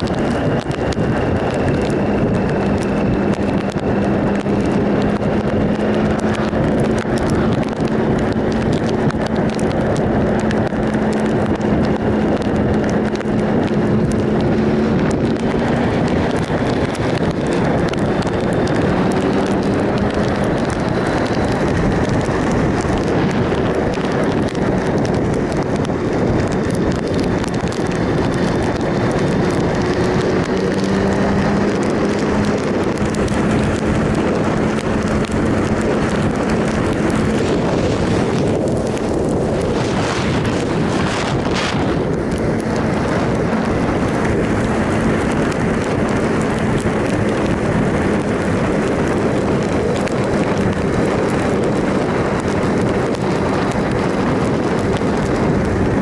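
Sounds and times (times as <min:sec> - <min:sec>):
motorcycle engine running: 0:00.0 - 0:56.0
wind rush on microphone: 0:00.0 - 0:56.0.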